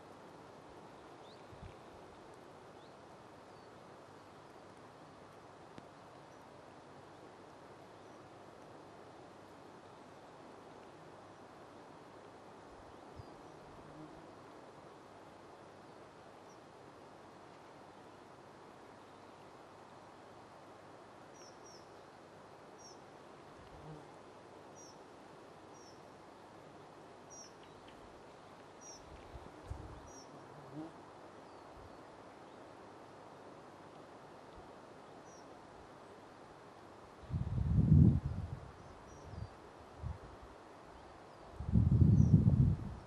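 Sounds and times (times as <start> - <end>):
faint outdoor hiss: 0.0 - 43.0.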